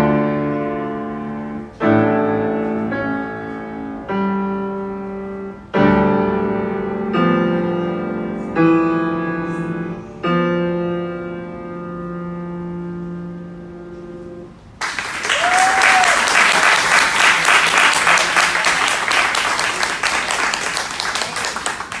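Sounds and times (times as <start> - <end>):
audience applause: 14.8 - 22.0.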